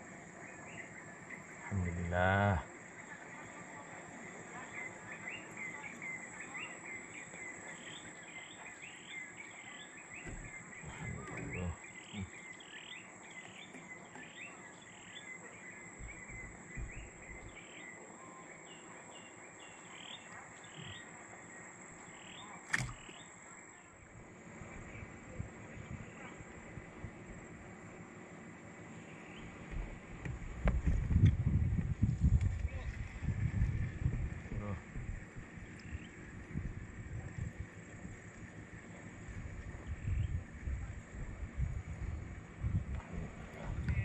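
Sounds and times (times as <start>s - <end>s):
high insect drone: 0.0s - 30.6s
low thumps: 10.2s - 12.3s, 16.0s - 17.6s
sharp click: 22.7s - 23.2s.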